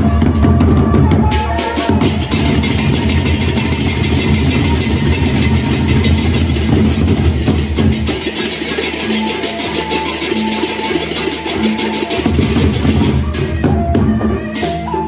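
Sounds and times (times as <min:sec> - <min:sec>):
big drums beating: 0:00.0 - 0:15.0
hand cymbals clashing: 0:01.6 - 0:13.2.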